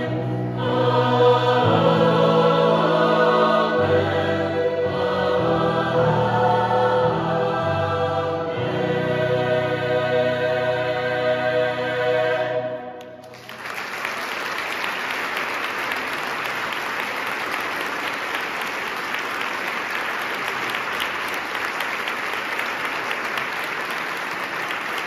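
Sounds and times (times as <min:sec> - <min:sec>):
choir holding chord: 0:00.0 - 0:13.4
audience applause: 0:13.2 - 0:25.0.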